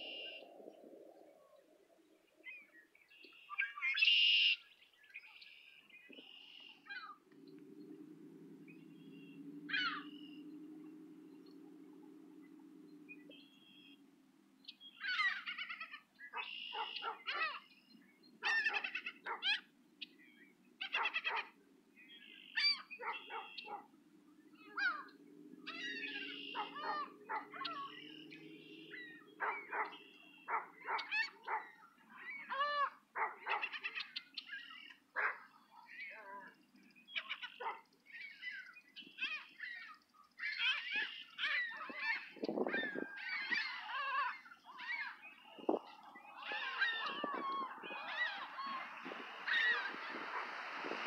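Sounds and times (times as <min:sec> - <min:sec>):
gulls calling: 0:00.0 - 0:02.8, 0:06.1 - 0:14.1, 0:14.7 - 0:20.2, 0:20.8 - 0:51.0.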